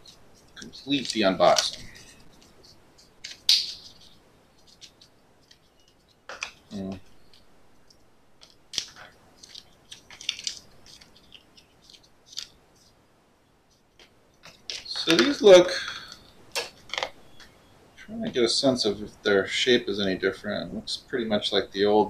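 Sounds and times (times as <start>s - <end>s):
packaging rustling and crinkling: 0.4s - 4.2s, 8.4s - 12.6s.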